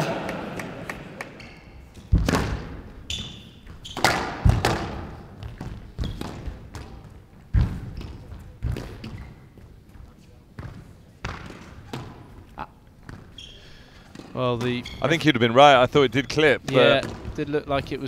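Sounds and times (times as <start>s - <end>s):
noisy crowd: 0.0s - 2.0s
squash ball hits: 2.0s - 3.0s, 3.9s - 9.2s, 10.6s - 12.3s, 17.0s - 17.4s
shoe squeaks on court floor: 3.1s - 4.3s, 6.0s - 6.3s, 9.0s - 9.6s, 13.1s - 13.8s, 14.6s - 15.2s.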